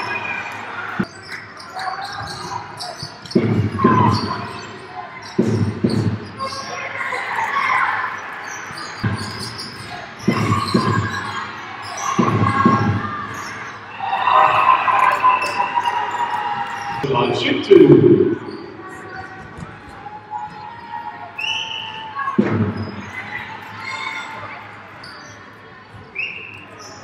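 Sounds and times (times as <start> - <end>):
voices in a hall: 0.0 - 27.0
basketball bouncing on wooden court: 3.2 - 4.3, 5.4 - 6.3, 10.2 - 11.3.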